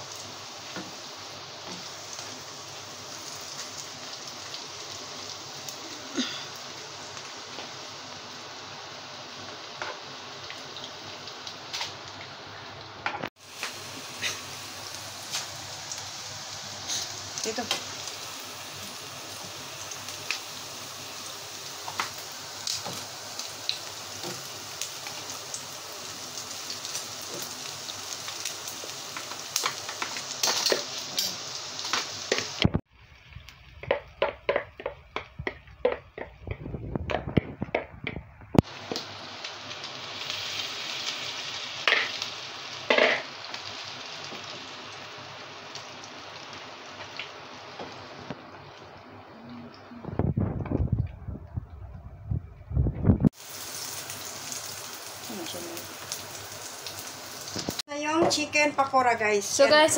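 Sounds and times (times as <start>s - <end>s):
food sizzling in oil: 0.0s - 50.8s, 52.8s - 59.9s.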